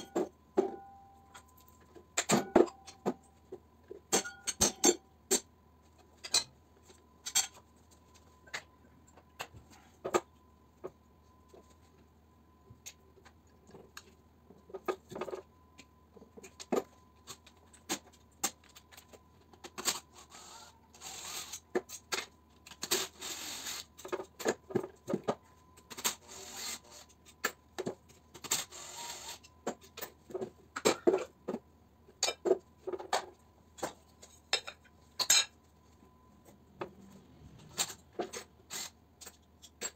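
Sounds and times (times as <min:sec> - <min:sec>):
cordless drill running: 0:28.7 - 0:29.4.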